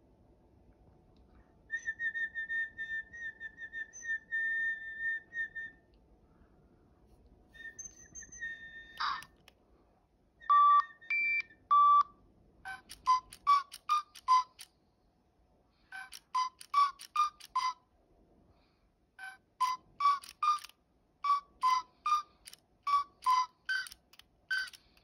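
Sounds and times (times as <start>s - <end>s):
toy electronic beeps: 7.7s - 9.4s, 10.5s - 12.1s, 12.7s - 14.7s, 15.9s - 17.8s, 19.2s - 24.9s
sharp click: 12.8s - 14.7s, 22.4s - 25.0s
warbling whistle: 21.3s - 22.3s.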